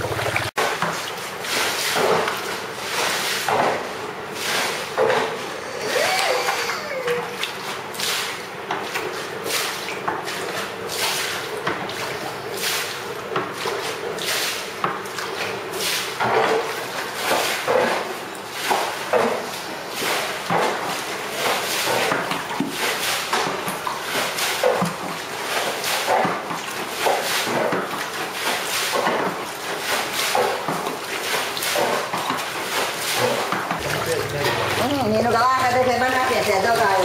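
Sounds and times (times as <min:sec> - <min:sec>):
water splashing: 0:00.0 - 0:03.5, 0:27.1 - 0:37.0
bucket scraping on tiles: 0:31.8 - 0:37.0.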